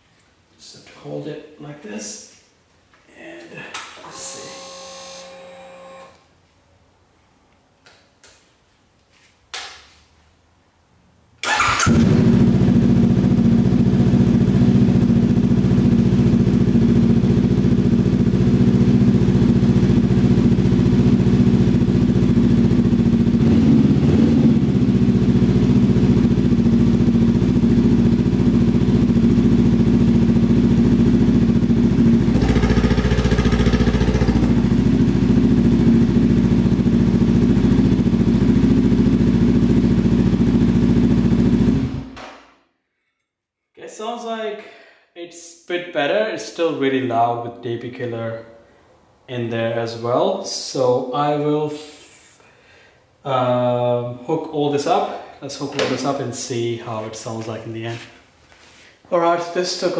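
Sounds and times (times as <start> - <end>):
loud motorcycle engine idling: 12.0 - 42.1.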